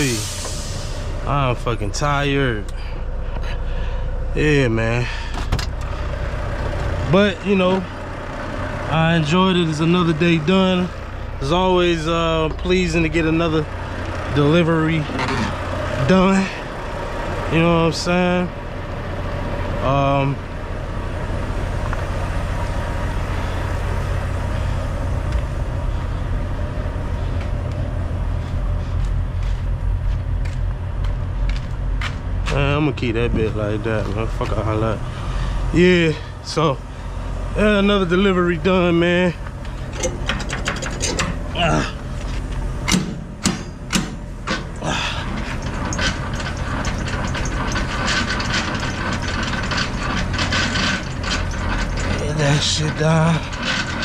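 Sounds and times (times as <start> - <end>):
diesel truck engine running: 0.0 - 54.0
fast gear clicks: 39.4 - 54.0.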